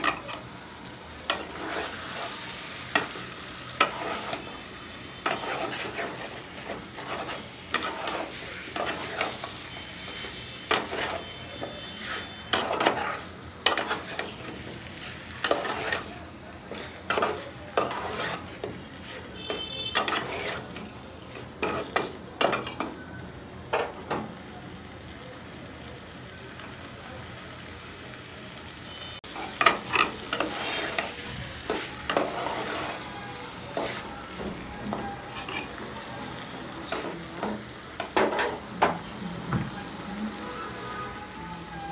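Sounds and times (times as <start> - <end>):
frying sizzle: 0.0 - 41.9
metal spatula scraping pot: 3.8 - 4.5, 5.2 - 16.1, 16.7 - 22.9, 29.4 - 34.1, 35.0 - 35.8.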